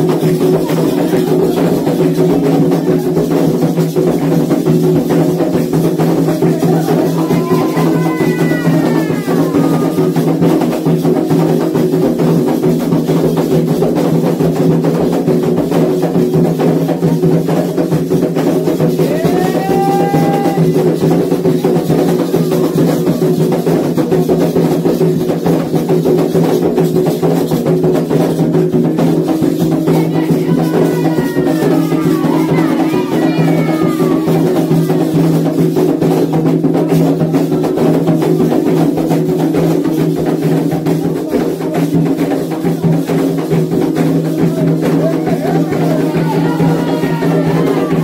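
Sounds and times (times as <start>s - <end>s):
hand drums playing fast: 0.0s - 48.0s
high gliding calls: 29.9s - 35.2s.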